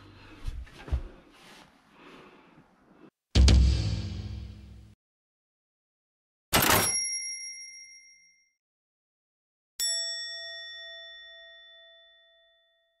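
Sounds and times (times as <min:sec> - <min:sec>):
bell-like ding: 0:06.7 - 0:08.6, 0:09.8 - 0:13.0.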